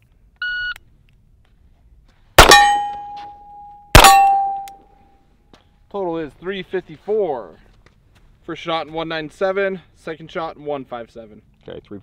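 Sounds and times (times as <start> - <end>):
pistol shots: 2.4 - 3.3, 3.9 - 4.7
steel target ringing: 2.4 - 4.8.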